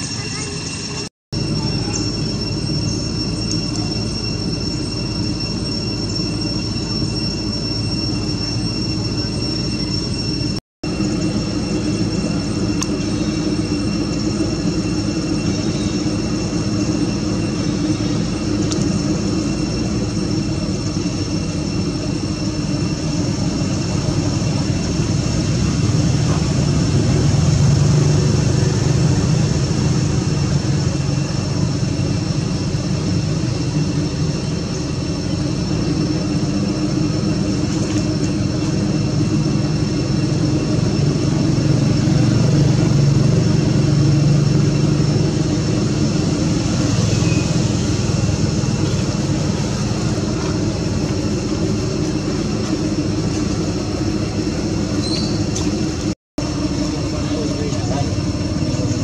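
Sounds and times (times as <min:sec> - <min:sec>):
high-pitched tones: 0:00.0 - 0:37.6
low drone: 0:00.0 - 0:59.0.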